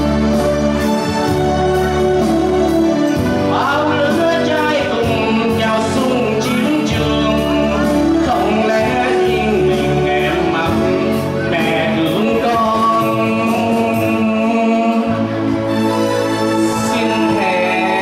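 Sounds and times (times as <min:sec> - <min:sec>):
backing music: 0:00.0 - 0:18.0
man singing into a microphone: 0:03.4 - 0:15.6, 0:16.6 - 0:18.0.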